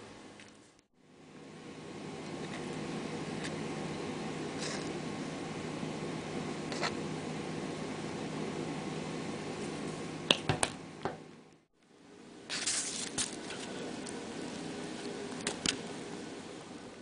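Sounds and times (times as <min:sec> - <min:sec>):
kitchen room hum: 0:00.0 - 0:17.0.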